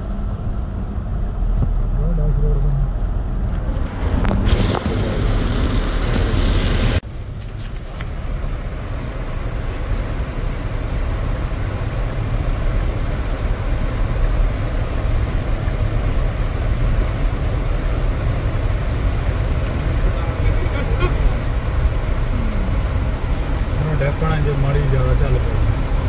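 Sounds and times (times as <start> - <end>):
strong storm wind blowing: 3.1 - 7.0.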